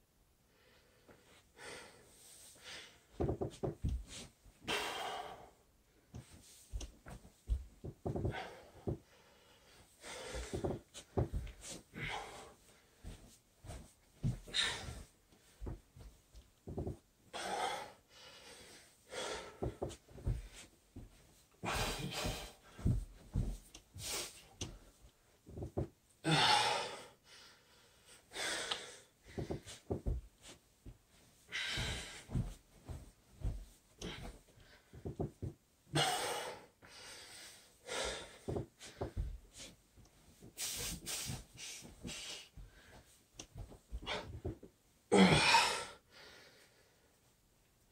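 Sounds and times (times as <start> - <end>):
man breathing heavily: 0.5 - 6.9, 7.5 - 16.0, 16.7 - 25.0, 25.6 - 30.6, 31.2 - 47.2
bare feet thumping on carpet: 3.2 - 4.2, 6.2 - 9.0, 10.2 - 11.8, 13.0 - 17.0, 19.6 - 24.8, 25.5 - 25.9, 29.3 - 35.6, 38.4 - 39.7, 40.4 - 44.7.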